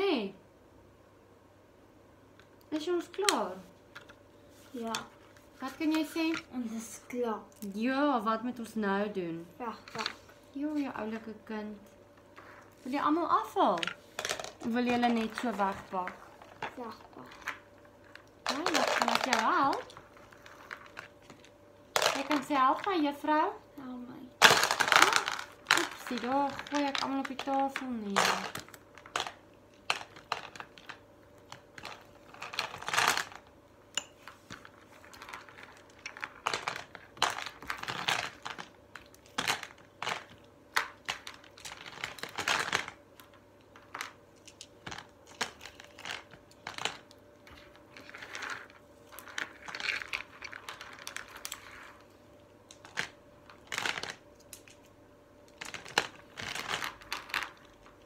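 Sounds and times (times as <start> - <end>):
plastic beads clicking and rattling: 13.7 - 23.0, 24.4 - 33.5, 34.5 - 52.0, 52.7 - 54.8, 55.5 - 58.0.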